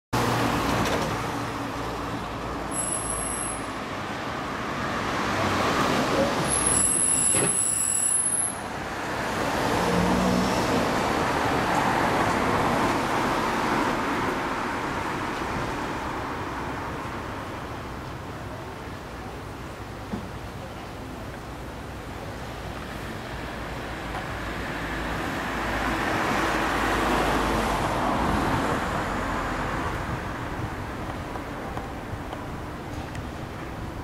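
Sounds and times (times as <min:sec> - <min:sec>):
road traffic: 0:00.1 - 0:34.0
brief high squeals: 0:02.7 - 0:03.7, 0:06.4 - 0:08.6.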